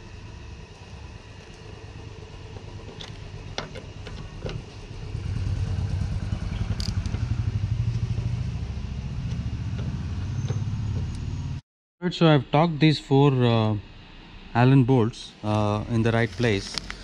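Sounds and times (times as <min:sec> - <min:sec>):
engine rumble: 0:00.0 - 0:11.6
ratchet clicks: 0:06.5 - 0:07.4.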